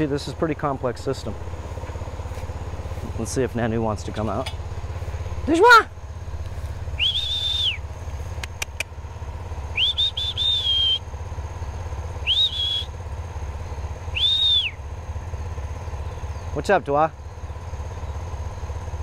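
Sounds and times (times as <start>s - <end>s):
low motor drone: 0.0s - 19.0s
person whistling: 7.0s - 7.8s, 9.8s - 11.0s, 12.2s - 12.9s, 14.1s - 14.8s
sharp clicks: 8.3s - 9.0s.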